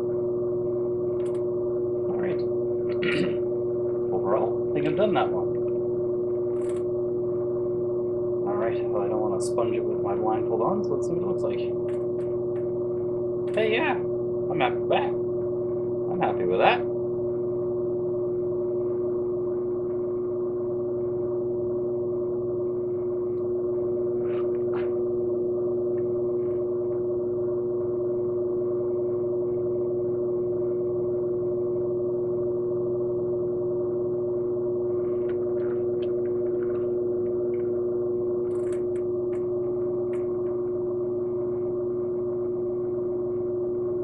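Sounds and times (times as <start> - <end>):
pottery wheel motor humming: 0.0 - 44.0.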